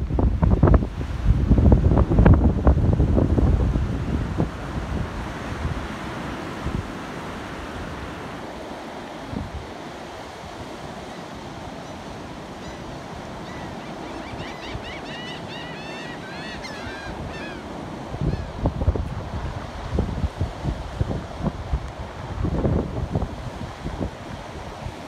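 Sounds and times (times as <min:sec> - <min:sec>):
wind buffeting microphone: 0:00.0 - 0:07.0, 0:16.6 - 0:25.0
ocean surf washing: 0:00.0 - 0:25.0
bird chirping: 0:13.5 - 0:17.6.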